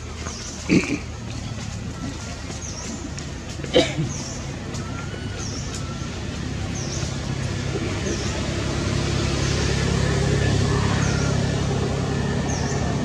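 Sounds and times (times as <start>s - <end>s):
vehicle engine running: 0.0s - 13.0s.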